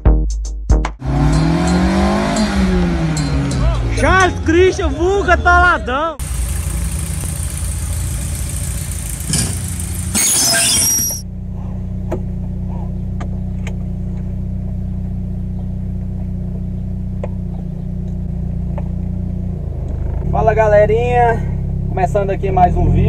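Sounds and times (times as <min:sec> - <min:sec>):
car engine running: 0:01.0 - 0:23.0.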